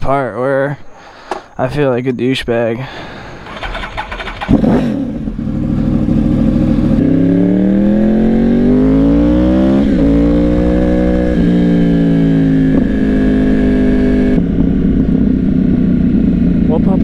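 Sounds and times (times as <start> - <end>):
motorcycle engine revving: 3.4 - 17.0.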